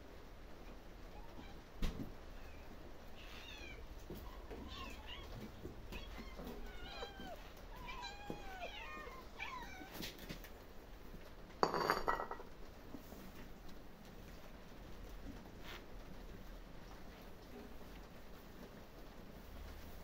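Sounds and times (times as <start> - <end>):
cats meowing: 2.4 - 10.4.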